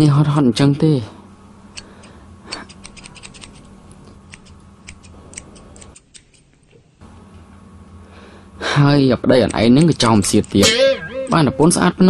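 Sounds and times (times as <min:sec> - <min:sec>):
low steady hum: 0:00.0 - 0:12.0
scissors snipping hair: 0:01.8 - 0:06.5, 0:09.4 - 0:10.6.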